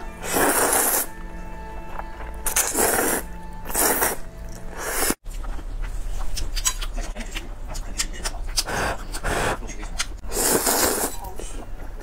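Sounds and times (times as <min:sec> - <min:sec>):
faint background music: 0:00.0 - 0:12.0
noodles slurped: 0:00.2 - 0:01.1, 0:02.4 - 0:05.2, 0:10.2 - 0:11.6
wet chewing: 0:01.9 - 0:12.0.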